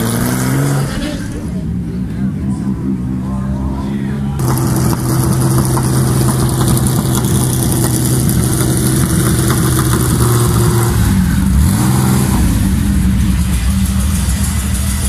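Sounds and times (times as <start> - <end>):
car engine running at low revs: 0.0 - 15.0.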